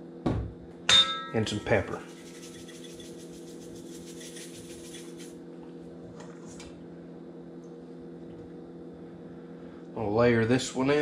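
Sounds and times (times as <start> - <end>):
steady low hum: 0.0 - 11.0
pepper shaker rattling: 1.9 - 5.4.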